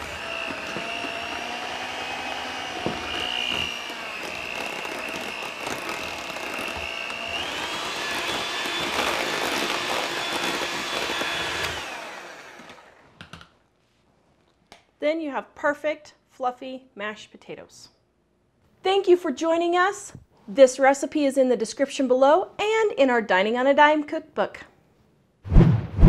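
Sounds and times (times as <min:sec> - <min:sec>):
electric hand mixer whining: 0:00.0 - 0:13.1.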